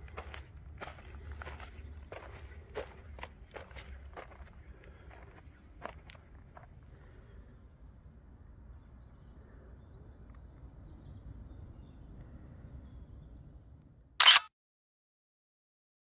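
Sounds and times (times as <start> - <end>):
low wind rumble: 0.0 - 14.1
camera shutter click: 14.2 - 14.5.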